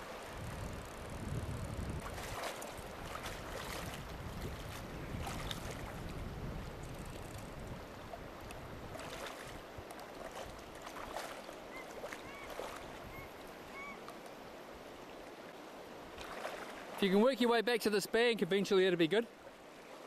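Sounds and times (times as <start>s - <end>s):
river water rushing: 0.0s - 0.4s, 2.0s - 6.2s, 7.8s - 20.0s
wind rumbling on microphone: 0.0s - 14.0s.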